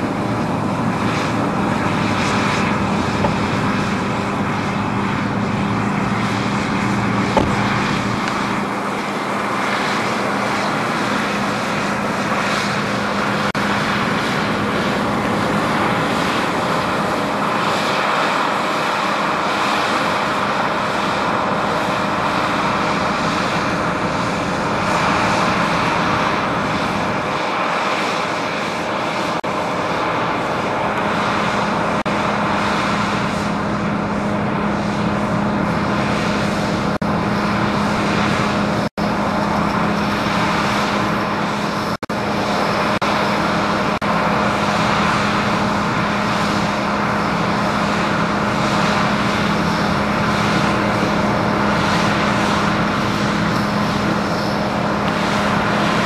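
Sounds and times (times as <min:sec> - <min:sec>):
combine harvester droning: 0:00.0 - 0:56.0
sharp knock: 0:07.4 - 0:07.8.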